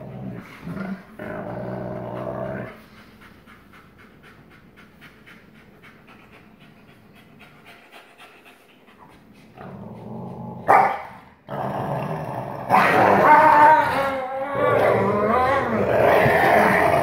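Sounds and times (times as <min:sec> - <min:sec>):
dog growling: 0:00.0 - 0:03.1, 0:09.5 - 0:17.0
dog panting quickly: 0:00.0 - 0:09.6
dog snarling loudly: 0:14.6 - 0:17.0.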